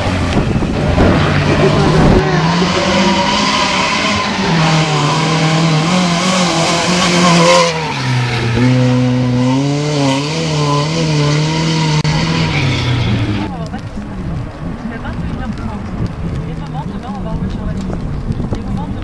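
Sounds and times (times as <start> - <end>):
rally car engines revving: 0.0 - 19.0.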